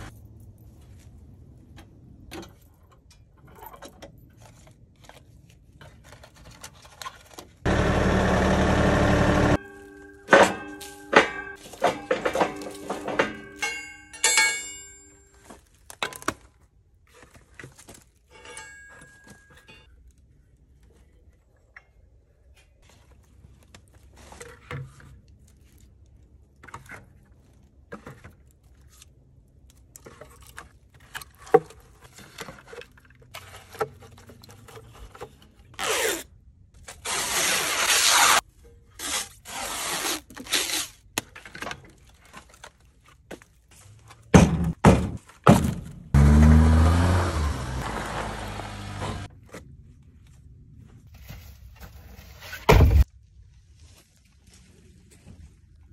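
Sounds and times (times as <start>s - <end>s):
firewood clanking into metal bucket: 9.6s - 16.5s.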